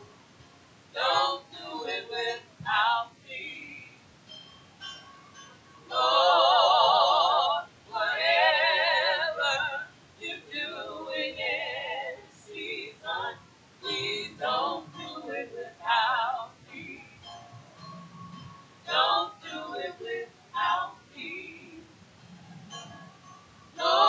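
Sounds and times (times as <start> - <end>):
woman singing with vibrato: 0.9 - 4.0, 5.9 - 17.2, 18.8 - 22.0, 23.7 - 24.0.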